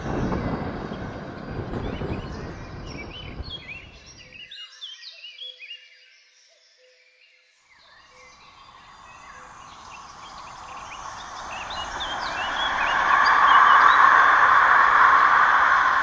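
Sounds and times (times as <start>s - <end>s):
train approaching: 0.0s - 4.5s, 8.2s - 16.0s
birds chirping: 0.0s - 5.8s, 7.7s - 16.0s.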